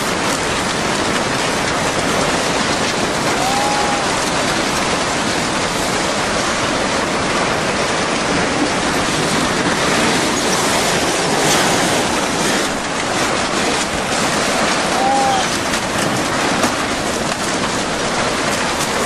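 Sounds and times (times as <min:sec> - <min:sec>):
floodwater rushing: 0:00.0 - 0:19.0.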